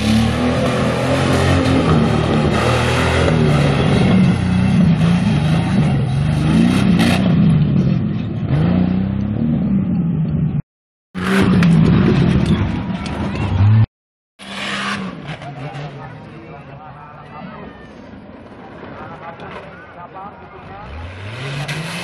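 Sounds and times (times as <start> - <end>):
buggy engine revving hard: 0.0 - 10.0, 13.3 - 16.1, 20.7 - 22.0.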